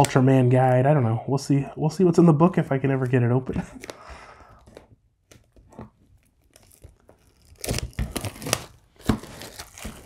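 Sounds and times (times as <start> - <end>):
plastic wrap crinkling and tearing: 5.2 - 10.0.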